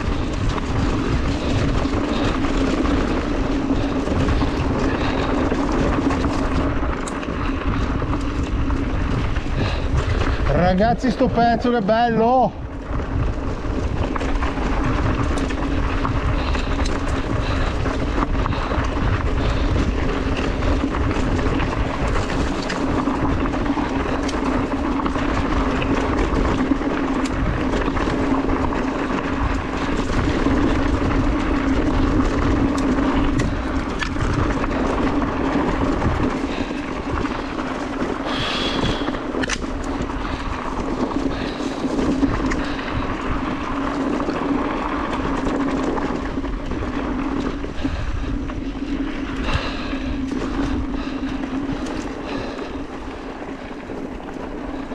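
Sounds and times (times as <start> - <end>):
steady motor hum: 0.0 - 11.0, 12.6 - 54.9
bike tyres rumbling on dirt: 0.0 - 54.9.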